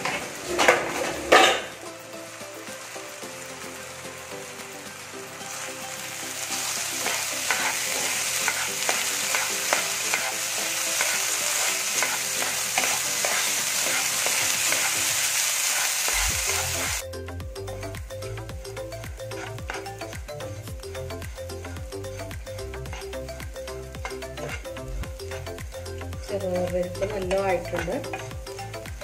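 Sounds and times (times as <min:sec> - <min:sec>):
lentils sizzling in a pan: 0:00.0 - 0:17.0, 0:17.8 - 0:29.0
background music: 0:00.0 - 0:29.0
wooden spatula scraping: 0:07.0 - 0:17.0, 0:19.2 - 0:23.2, 0:24.0 - 0:25.6.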